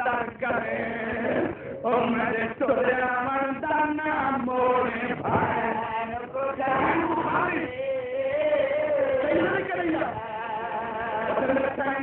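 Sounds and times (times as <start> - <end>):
man chanting a melodic recitation: 8.4 - 12.0.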